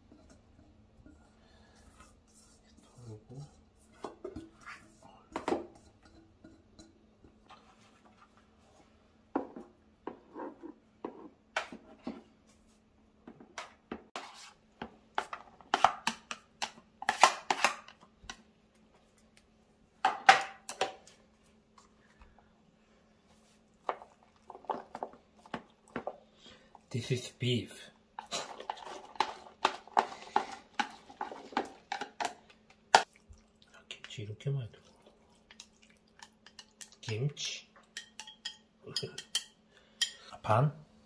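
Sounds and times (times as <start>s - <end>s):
kitchenware clattering: 4.0s - 7.6s, 28.2s - 32.4s, 36.2s - 40.3s
chopsticks scraping plastic containers: 28.2s - 32.4s.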